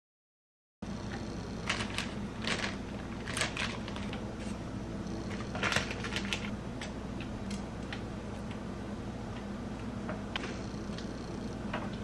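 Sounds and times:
low hum: 0.8 - 12.0
plastic bag crinkling: 1.6 - 4.6, 5.3 - 6.5.

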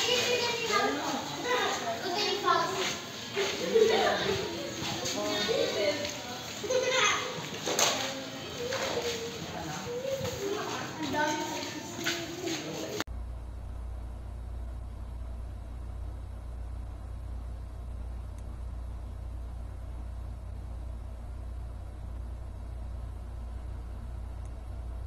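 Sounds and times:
low rumble: 13.1 - 25.0.

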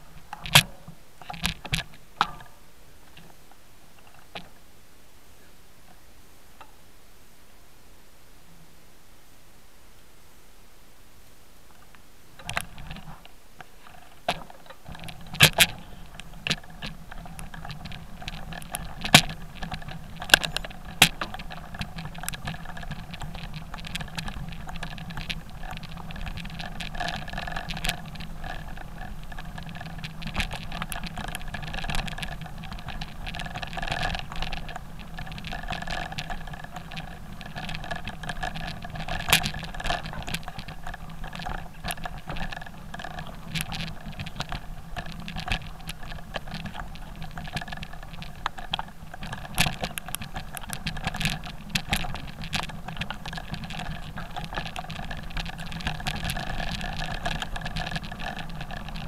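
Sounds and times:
bike rattle: 0.0 - 4.6, 12.4 - 59.0
bike tyres crunching gravel: 11.8 - 59.0
bike knocking over rocks: 12.4 - 59.0.

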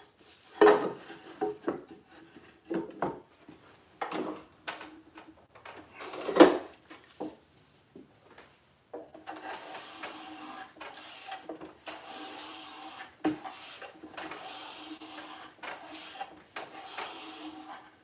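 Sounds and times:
hand plane rasping on wood: 9.2 - 18.0.

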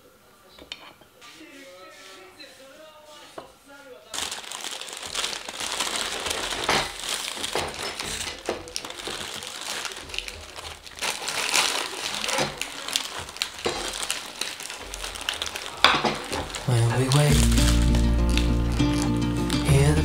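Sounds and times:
paper bag crinkling: 4.1 - 20.0
plastic film crackling: 4.1 - 20.0.

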